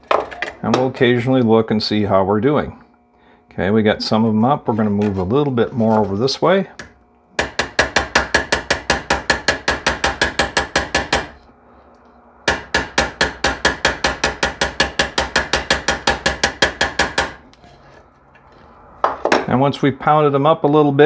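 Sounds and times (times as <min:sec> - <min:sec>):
hammer tapping on metal: 0:06.8 - 0:11.3, 0:12.5 - 0:17.4.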